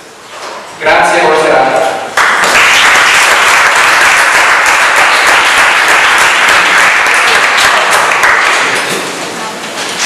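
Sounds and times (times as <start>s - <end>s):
audience applauding: 2.1s - 9.1s.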